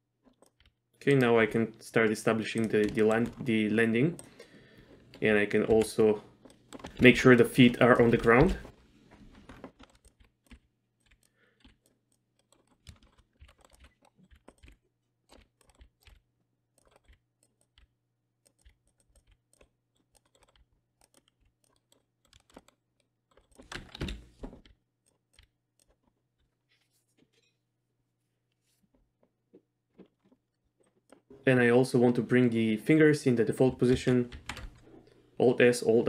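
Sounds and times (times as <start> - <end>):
keyboard and mouse clicks: 0.2 - 26.6.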